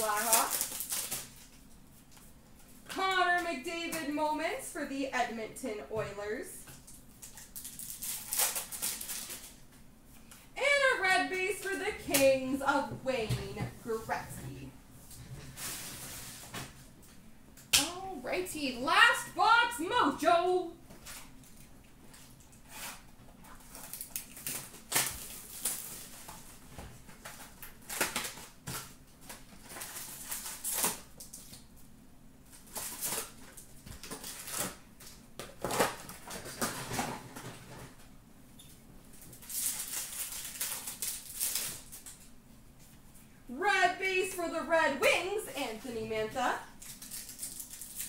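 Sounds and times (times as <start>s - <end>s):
foil packs rustling and crinkling: 0.0s - 2.8s, 6.8s - 10.8s, 21.0s - 31.8s, 32.5s - 38.1s, 39.1s - 42.3s, 46.4s - 48.0s.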